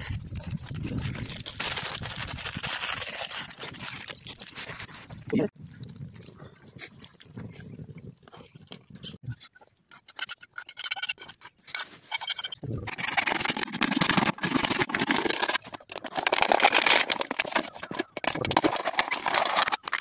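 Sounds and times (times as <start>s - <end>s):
knife sawing through plastic bottle: 13.0s - 20.0s.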